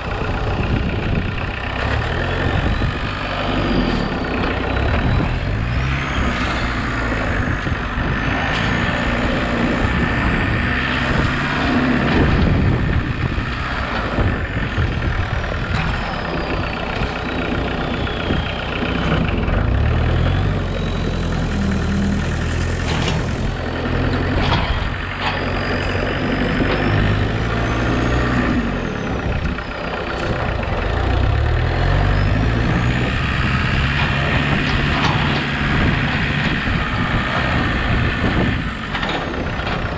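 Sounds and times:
tractor engine revving: 0.0s - 39.9s.

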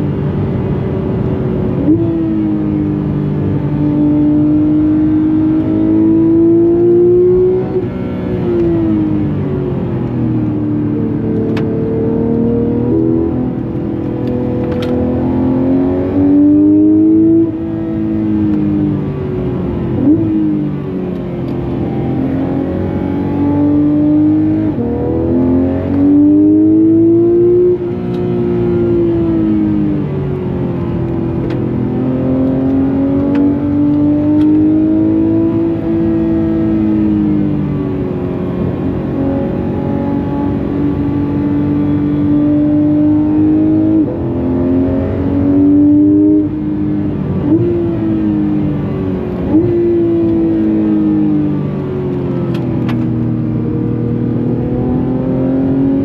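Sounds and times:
car engine revving through gears: 0.0s - 56.0s.

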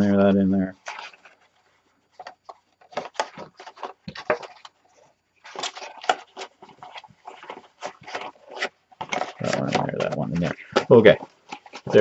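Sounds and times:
card rustling and tapping: 2.2s - 4.8s, 5.4s - 12.0s.

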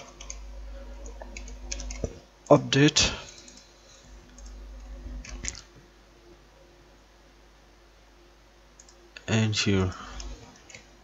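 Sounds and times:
faint steady hum: 0.0s - 11.0s
computer mouse clicks: 1.0s - 2.2s, 3.3s - 4.6s, 5.2s - 5.7s, 8.8s - 9.0s, 10.1s - 10.9s.

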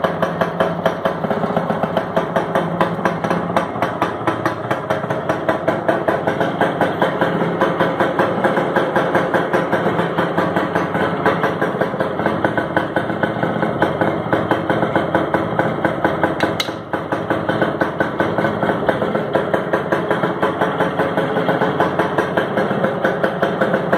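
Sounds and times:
two-stroke engine idling: 0.0s - 23.9s.

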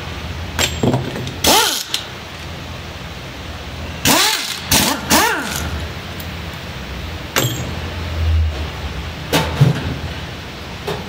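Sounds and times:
sharp knocks and clatters: 0.6s - 1.4s.

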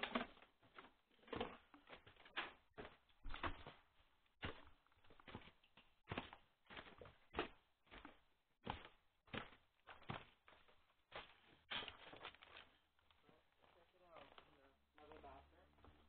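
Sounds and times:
footsteps climbing stairs: 0.0s - 12.7s.

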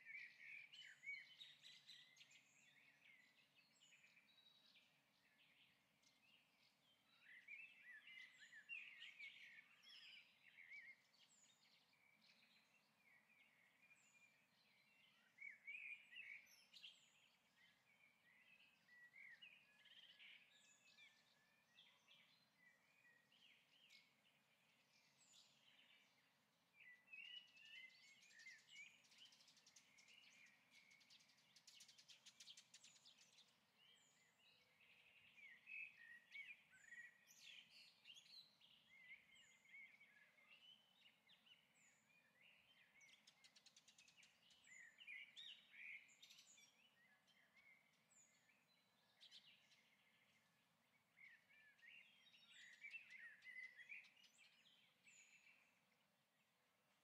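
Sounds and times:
faint birdsong: 0.0s - 57.0s.

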